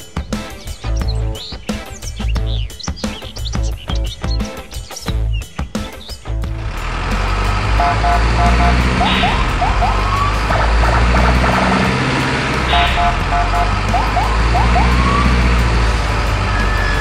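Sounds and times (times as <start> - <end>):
steady low rumble: 6.5 - 16.4
short beeping tones: 7.8 - 10.0, 12.7 - 14.0
rising siren-like whoops: 7.8 - 11.8, 12.7 - 15.7.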